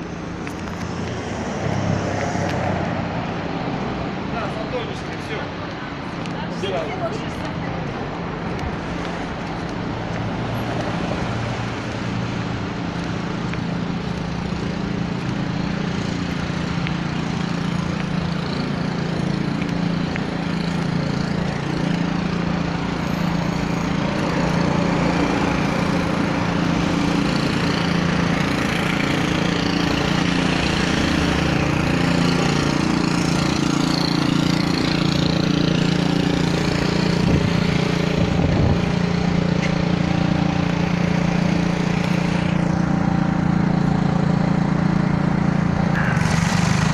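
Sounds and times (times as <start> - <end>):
city hum: 0.0 - 46.9.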